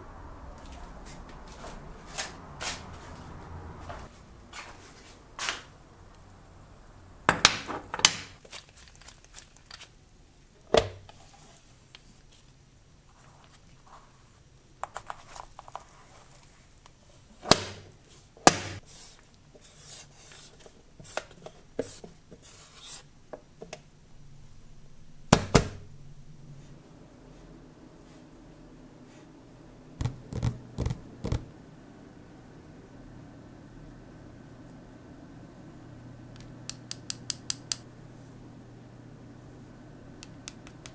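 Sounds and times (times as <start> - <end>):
soft handling noise: 0.6 - 5.7, 11.0 - 17.3.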